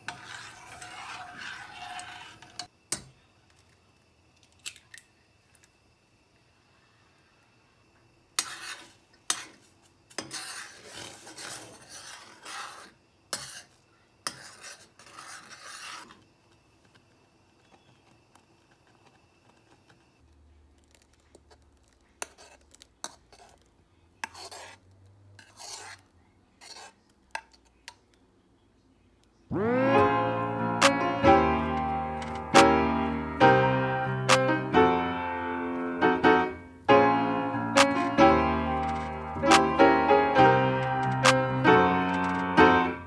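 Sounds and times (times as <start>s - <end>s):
metal spoon scraping saucepan: 0.0s - 2.7s, 8.4s - 16.2s, 24.2s - 24.8s, 25.4s - 26.0s, 26.6s - 27.0s, 38.7s - 40.2s.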